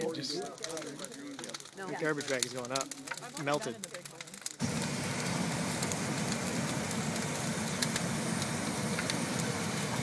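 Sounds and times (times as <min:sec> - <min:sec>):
fire crackling: 0:00.0 - 0:10.0
propane burner roaring: 0:04.6 - 0:10.0.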